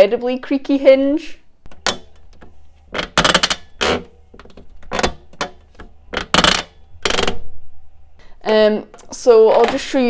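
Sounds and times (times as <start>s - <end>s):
plastic lid hinges creaking: 1.7s - 7.5s.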